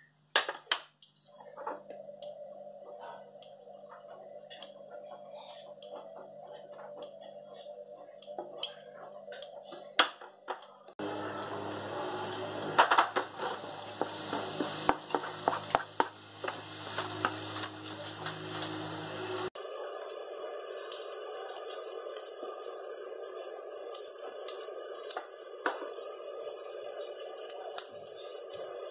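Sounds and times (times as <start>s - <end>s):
butter and oil sizzling: 11.0s - 28.9s
wooden spoon scraping a pan: 13.1s - 19.5s.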